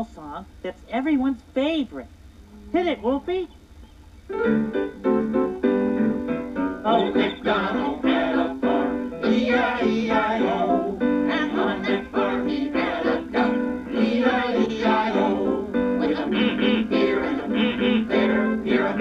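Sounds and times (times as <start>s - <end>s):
up-tempo song with plucked guitar: 4.3s - 11.5s.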